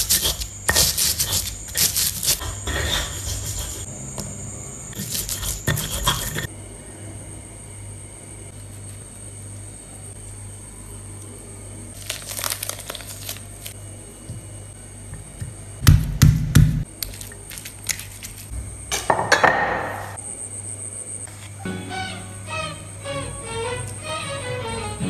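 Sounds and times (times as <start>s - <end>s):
crinkling rustle: 12.0s - 13.8s.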